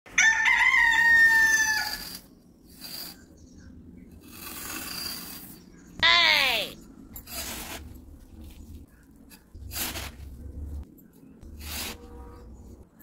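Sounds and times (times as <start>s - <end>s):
rooster crowing: 0.1s - 2.0s
stick scratching through sand: 1.4s - 3.4s, 4.2s - 5.8s, 7.2s - 10.5s, 11.4s - 12.8s.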